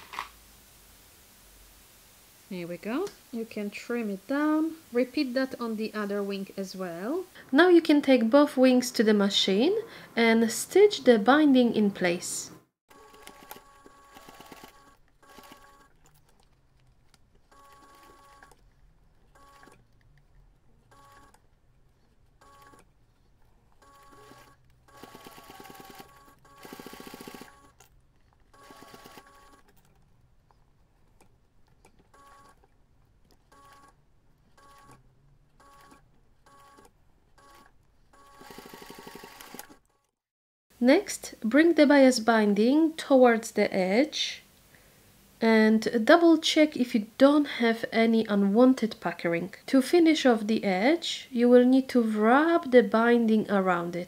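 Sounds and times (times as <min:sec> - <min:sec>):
sewing machine stitching: 0:12.9 - 0:16.2, 0:17.5 - 0:18.6, 0:19.3 - 0:19.8, 0:20.9 - 0:21.4, 0:22.4 - 0:22.9, 0:23.8 - 0:27.9, 0:28.5 - 0:30.0, 0:32.0 - 0:32.7, 0:33.5 - 0:34.0, 0:34.6 - 0:35.0, 0:35.6 - 0:40.1.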